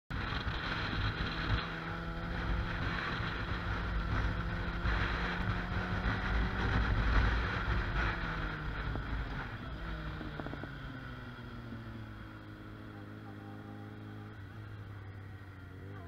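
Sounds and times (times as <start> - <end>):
wind noise on microphone: 0.1 - 11.2
motorcycle engine cruising: 0.1 - 16.0.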